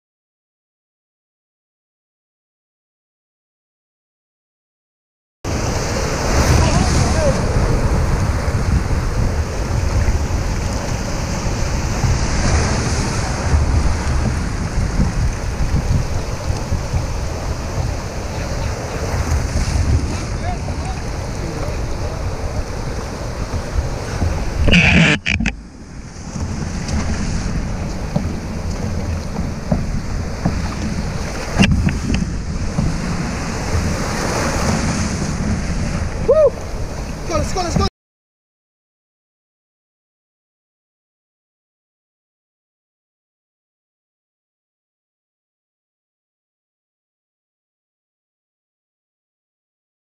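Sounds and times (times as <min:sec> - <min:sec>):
breaking surf and whitewater: 0:05.5 - 0:37.9
water washing around kayak: 0:05.5 - 0:37.9
wind rumble on microphone: 0:05.5 - 0:37.9.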